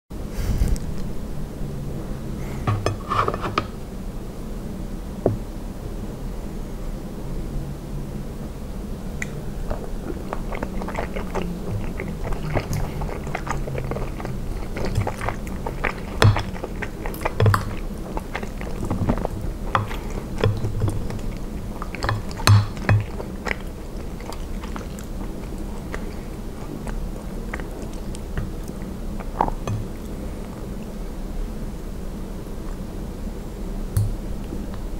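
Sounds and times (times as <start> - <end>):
wet chewing mouth sounds: 9.2 - 30.9.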